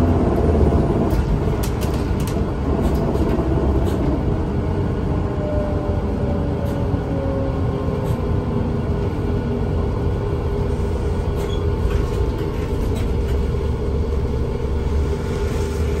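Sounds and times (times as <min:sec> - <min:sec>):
bus engine low rumble: 0:00.0 - 0:16.0
road noise: 0:00.0 - 0:16.0.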